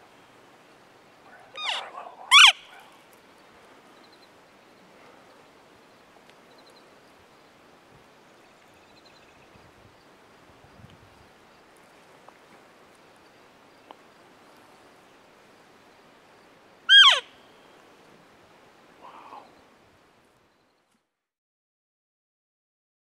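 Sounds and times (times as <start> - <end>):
elk bugling: 1.5 - 2.8, 16.9 - 17.3.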